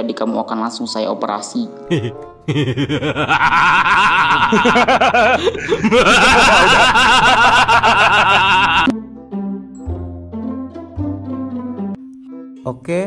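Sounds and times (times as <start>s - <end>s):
evil laughter: 1.9s - 8.9s.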